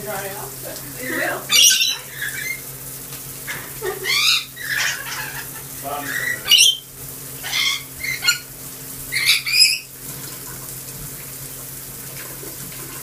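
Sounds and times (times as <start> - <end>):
shower running: 0.0 - 13.0
parrot screeching: 1.1 - 2.7, 3.5 - 9.9.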